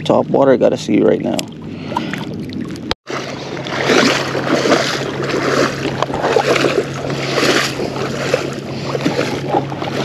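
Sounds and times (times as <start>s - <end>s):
wind on microphone: 1.2s - 10.0s
legs wading through water: 1.3s - 10.0s.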